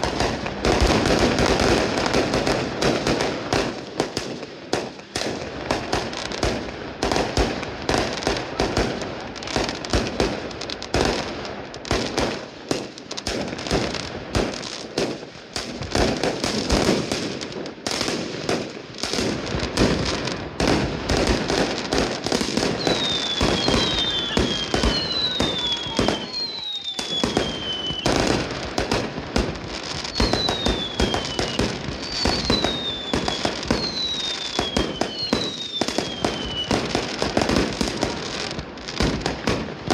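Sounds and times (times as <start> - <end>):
fireworks bangs: 0.0 - 39.9
falling firework whistles: 22.2 - 39.3.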